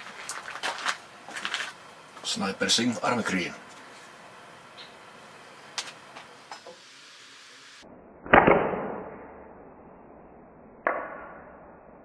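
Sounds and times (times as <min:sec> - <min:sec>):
slingshot shots: 0:08.3 - 0:09.2.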